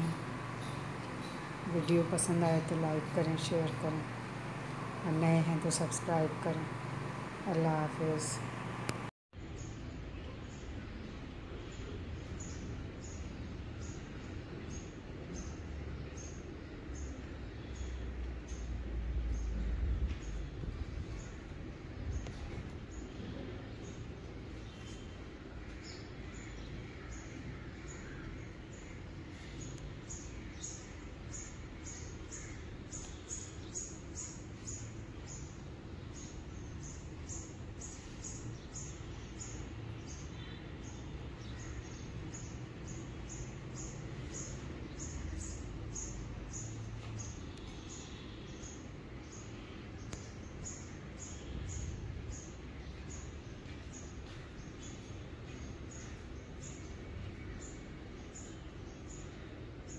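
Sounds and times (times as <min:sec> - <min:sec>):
low steady rumble: 0:00.0 - 0:37.8.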